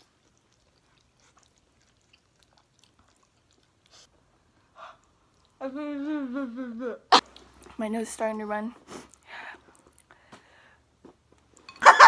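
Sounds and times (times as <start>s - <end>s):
faint eating sounds: 0.0s - 11.8s
woman's wavering vocal cry: 5.6s - 7.1s.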